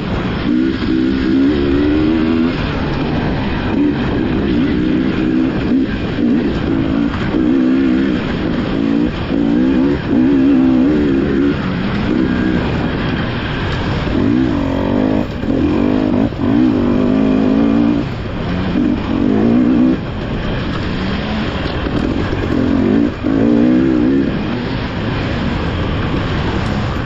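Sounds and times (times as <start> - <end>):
dirt bike engine revving: 0.0 - 27.0.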